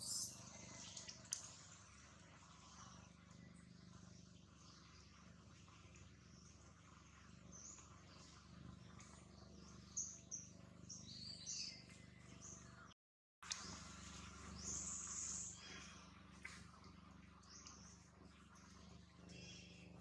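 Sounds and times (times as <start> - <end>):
high-pitched animal chirps: 0.0 - 0.3.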